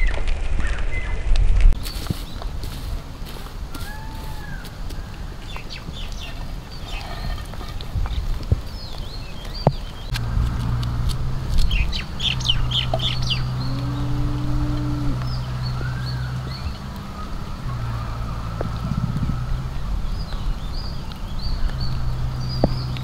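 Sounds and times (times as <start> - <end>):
low hum: 10.0 - 23.0
chickens clucking: 11.5 - 19.3.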